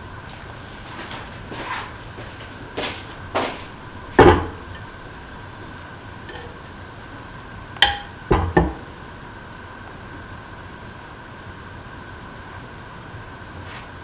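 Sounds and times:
steady background hum: 0:00.0 - 0:14.0
metallic clinks on steel pan: 0:06.3 - 0:06.7, 0:07.8 - 0:08.2.

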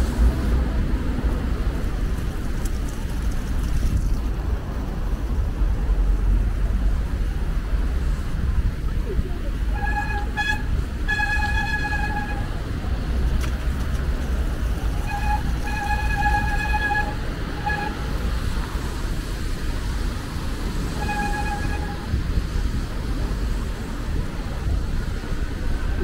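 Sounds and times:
low street rumble: 0:00.0 - 0:26.0
vehicle horn honking: 0:09.7 - 0:12.6, 0:14.9 - 0:18.2, 0:20.9 - 0:22.2.

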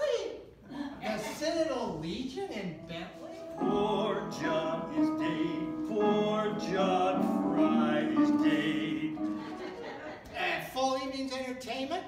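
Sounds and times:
music with held notes: 0:02.8 - 0:09.9.

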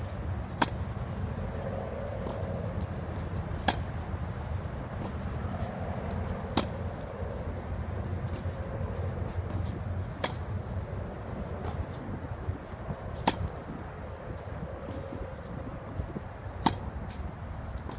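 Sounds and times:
tennis racket hitting ball: 0:00.5 - 0:01.0, 0:02.2 - 0:07.4, 0:08.1 - 0:10.8, 0:13.1 - 0:13.8, 0:16.5 - 0:17.2.

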